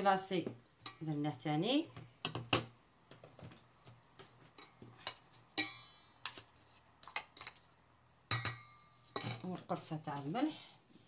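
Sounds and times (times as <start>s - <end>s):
steel bowl ringing: 5.6s - 6.2s, 8.3s - 9.2s
spatula tapping mixing bowls: 8.3s - 9.5s.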